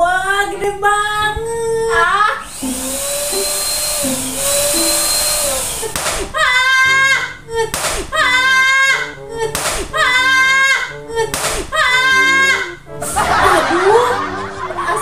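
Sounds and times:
electric balloon pump hissing: 2.4s - 10.6s, 11.2s - 13.2s.

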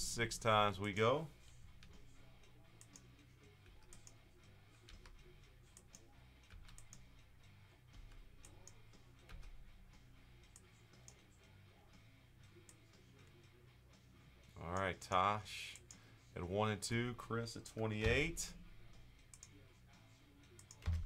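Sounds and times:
computer mouse clicking: 2.8s - 4.2s, 4.8s - 9.6s, 19.2s - 19.6s, 20.4s - 21.0s.

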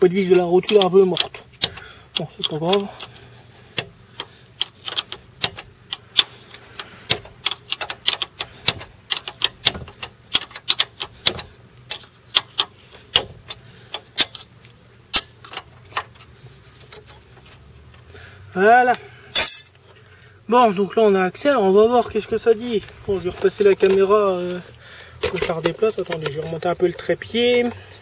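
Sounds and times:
wrench clicking: 0.2s - 3.1s, 3.8s - 14.5s.

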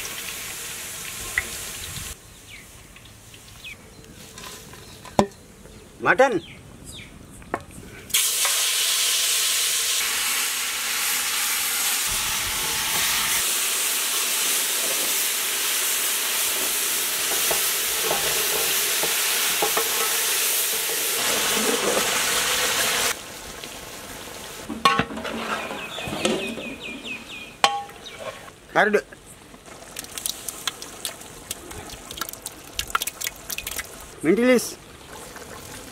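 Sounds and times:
meat sizzling in a metal pot: 0.0s - 2.2s, 8.1s - 24.9s
ladle scraping pot: 24.7s - 28.5s.

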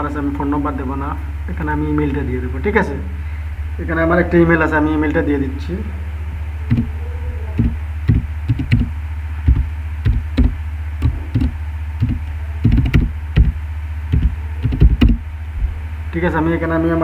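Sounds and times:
steady low hum: 0.0s - 17.0s
keyboard typing clicks: 7.6s - 15.2s.

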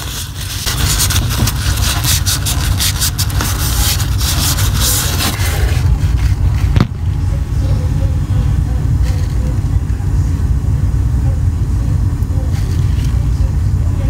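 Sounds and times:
paper towel rubbing metal coils: 0.0s - 7.0s, 12.4s - 13.6s
steady low rumble: 0.0s - 14.0s.

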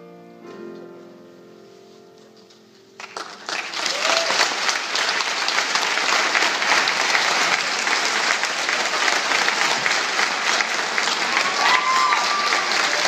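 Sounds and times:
audience applauding: 3.0s - 13.0s
person whooping: 3.9s - 4.4s, 11.4s - 13.0s.

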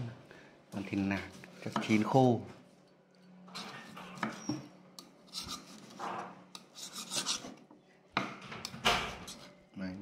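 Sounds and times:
knife scraping wooden board: 3.6s - 4.6s, 5.2s - 7.6s.

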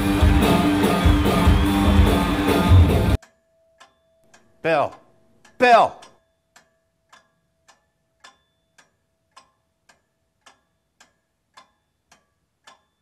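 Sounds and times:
faint clock ticking: 3.2s - 13.0s.

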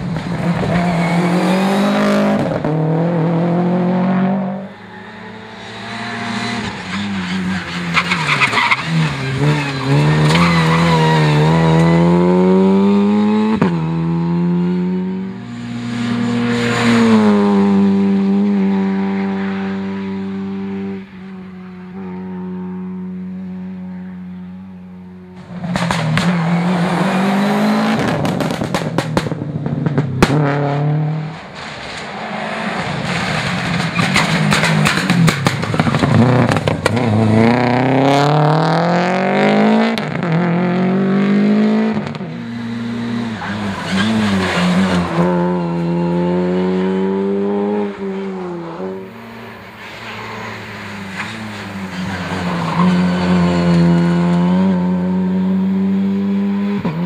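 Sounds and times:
rally car engine accelerating: 0.0s - 21.0s, 25.4s - 57.0s
second rally car engine revving: 9.0s - 20.9s, 34.2s - 49.5s, 51.1s - 57.0s.

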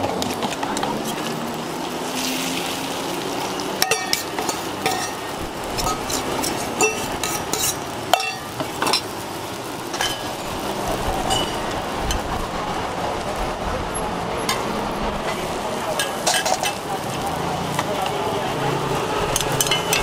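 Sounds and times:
food sizzling on griddle: 0.0s - 20.0s
metal spatula scraping griddle: 3.8s - 9.2s, 9.9s - 12.3s, 14.4s - 17.9s, 18.9s - 20.0s.

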